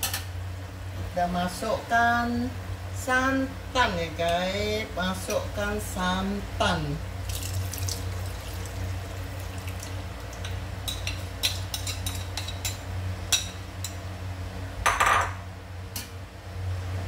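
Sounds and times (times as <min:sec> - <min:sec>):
steady low hum: 0:00.0 - 0:17.0
liquid pouring and splashing: 0:07.2 - 0:10.5.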